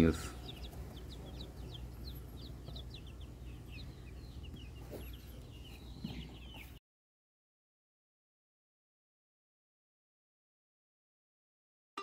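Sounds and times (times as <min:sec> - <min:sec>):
chicks peeping: 0:00.0 - 0:06.8
low steady hum: 0:00.0 - 0:06.8.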